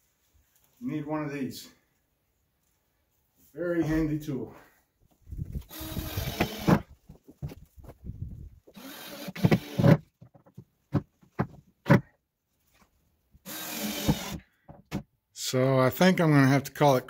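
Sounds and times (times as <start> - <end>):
cordless drill driving screws: 5.6 - 6.9, 8.7 - 10.0, 13.4 - 14.5.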